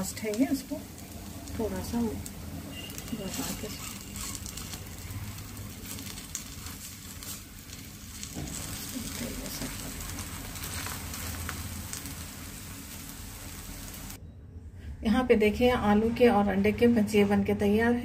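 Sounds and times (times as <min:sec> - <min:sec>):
patties sizzling in oil: 0:00.0 - 0:14.2.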